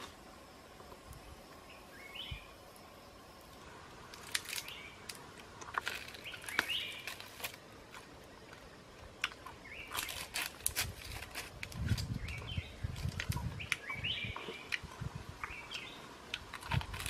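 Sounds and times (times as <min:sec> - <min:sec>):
insect drone: 0:00.0 - 0:17.0
bird chirps: 0:01.6 - 0:02.6, 0:06.2 - 0:07.2, 0:12.2 - 0:14.8
crunching and tearing food: 0:04.1 - 0:17.0.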